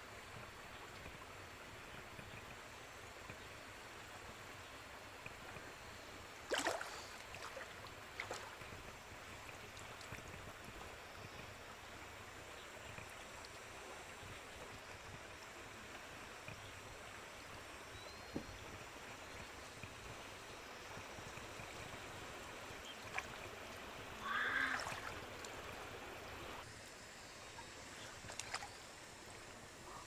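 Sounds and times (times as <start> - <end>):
moving water washing: 5.0 - 30.0
water splashing and sloshing: 6.4 - 10.9, 19.4 - 26.7, 27.6 - 29.6.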